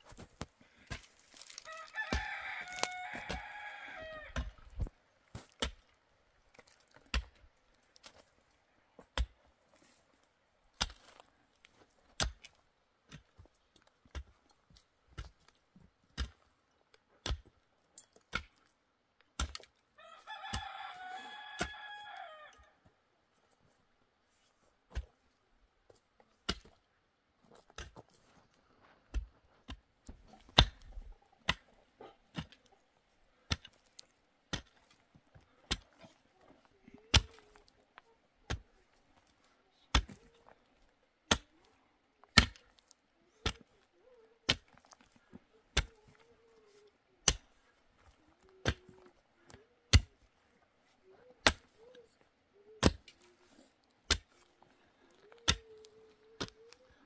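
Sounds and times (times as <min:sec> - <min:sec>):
pickaxe striking stony soil: 0:00.1 - 0:05.9, 0:10.8 - 0:11.3, 0:12.1 - 0:14.4, 0:15.1 - 0:16.5, 0:19.4 - 0:19.7, 0:26.4 - 0:26.8, 0:29.1 - 0:32.7, 0:33.5 - 0:36.0, 0:37.0 - 0:37.8, 0:39.9 - 0:40.4, 0:41.3 - 0:41.6, 0:42.3 - 0:43.7, 0:44.5 - 0:46.1, 0:47.2 - 0:47.6, 0:49.9 - 0:50.2, 0:51.4 - 0:51.8, 0:52.7 - 0:53.3, 0:54.0 - 0:54.5, 0:55.4 - 0:55.8.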